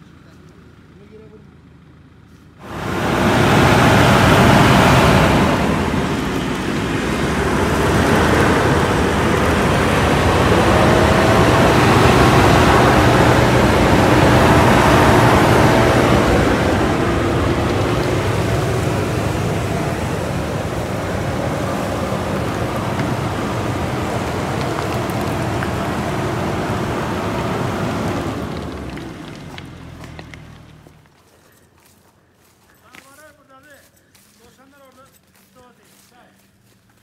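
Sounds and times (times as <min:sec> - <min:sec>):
truck engine running: 0:00.0 - 0:37.0
loud continuous rushing noise: 0:02.6 - 0:28.7.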